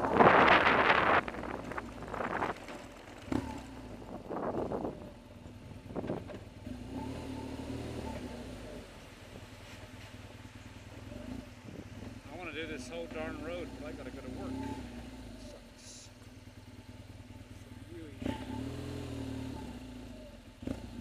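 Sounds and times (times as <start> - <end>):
wind on microphone: 0.0 - 2.7, 3.9 - 5.2
motorcycle engine running: 0.0 - 21.0.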